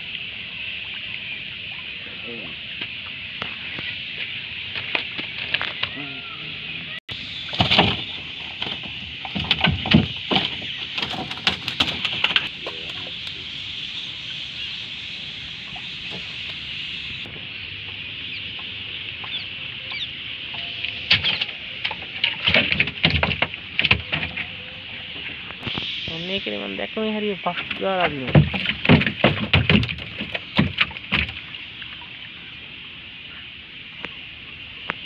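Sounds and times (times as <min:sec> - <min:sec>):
fish flapping against a boat hull: 0:07.3 - 0:13.4, 0:27.6 - 0:31.5
high-pitched chirring: 0:10.5 - 0:17.3.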